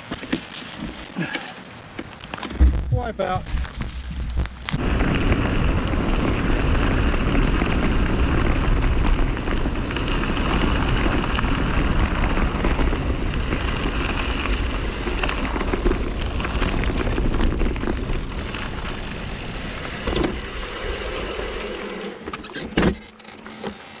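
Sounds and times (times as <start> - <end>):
bike tyres rolling on gravel: 0.0 - 24.0
wind buffeting microphone: 2.5 - 20.1.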